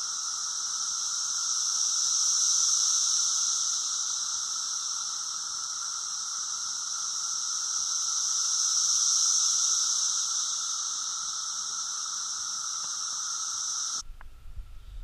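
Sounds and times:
cicadas droning: 0:00.0 - 0:14.1.

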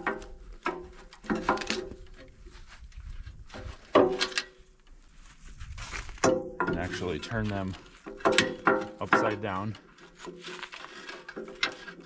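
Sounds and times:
metal shanks clanking and rattling: 0:00.0 - 0:02.3, 0:03.5 - 0:04.6, 0:06.2 - 0:12.0.

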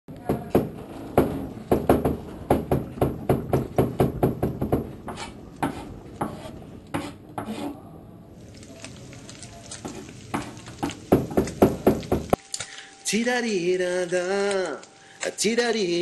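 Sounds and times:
knife chopping on cutting board: 0:03.8 - 0:07.7.

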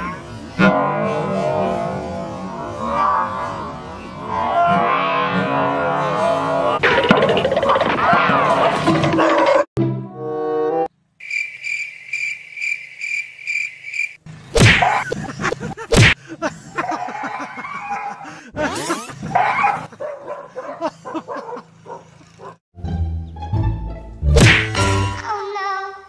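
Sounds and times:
cricket chirping: 0:11.2 - 0:14.2
dog barks and yelps: 0:14.8 - 0:15.1, 0:16.8 - 0:18.3, 0:19.0 - 0:22.6.

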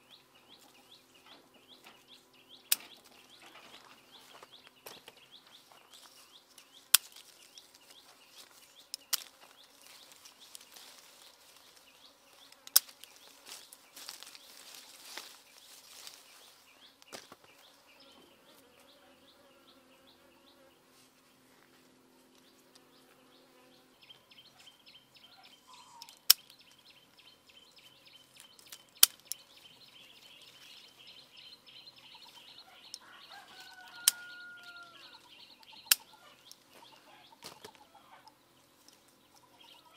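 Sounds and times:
insects buzzing: 0:00.0 - 0:20.9
leaves rustling: 0:05.6 - 0:17.4
scissors snipping stems: 0:08.9 - 0:09.3, 0:28.4 - 0:29.4.

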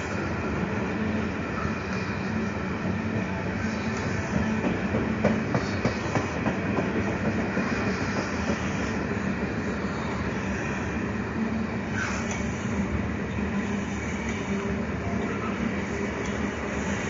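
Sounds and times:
train low rumble and hum: 0:00.0 - 0:17.0
train wheels clacking over rails: 0:02.7 - 0:10.7.

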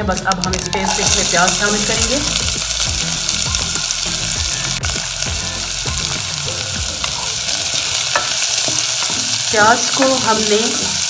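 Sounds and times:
onion sizzling in hot oil: 0:00.0 - 0:11.0
spatula scraping and knocking pan: 0:06.8 - 0:09.4.

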